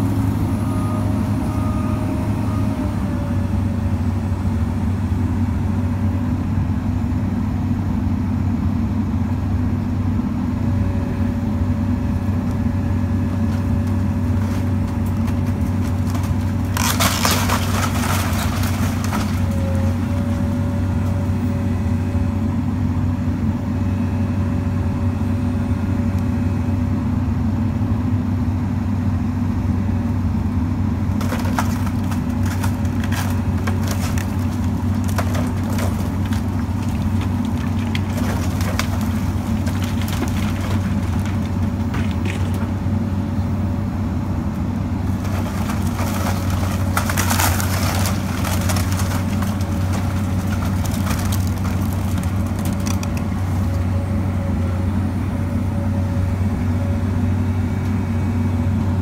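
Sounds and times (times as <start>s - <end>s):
excavator diesel engine running: 0.0s - 59.0s
wood cracking and crunching: 12.4s - 21.3s, 31.1s - 42.9s, 45.0s - 54.1s.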